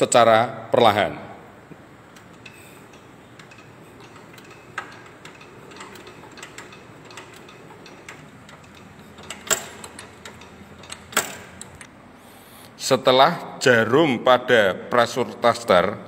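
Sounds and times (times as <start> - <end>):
engine hand crank clicking: 2.1 - 11.9.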